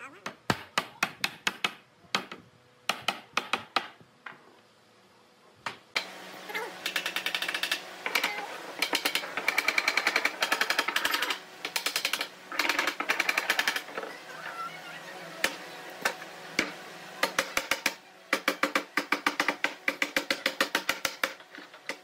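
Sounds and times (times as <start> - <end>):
hammer tapping on wooden boards: 0.5 - 4.4.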